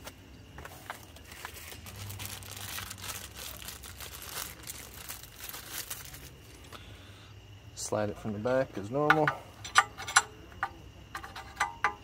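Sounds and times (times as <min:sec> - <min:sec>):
plastic packaging crinkling: 0:00.8 - 0:06.7.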